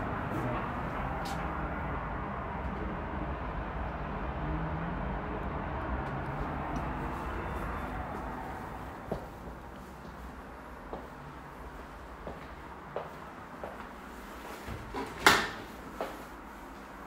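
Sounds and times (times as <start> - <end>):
distant city traffic: 0.0 - 17.0.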